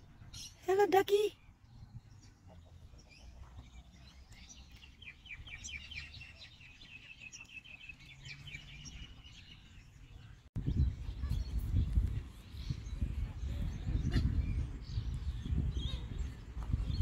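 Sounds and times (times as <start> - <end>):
low wind rumble: 8.7 - 17.0.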